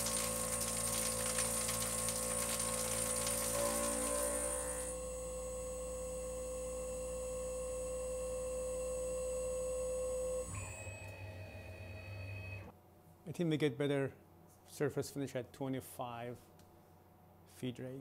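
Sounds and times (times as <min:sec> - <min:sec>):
spindle whine: 0:00.0 - 0:12.7.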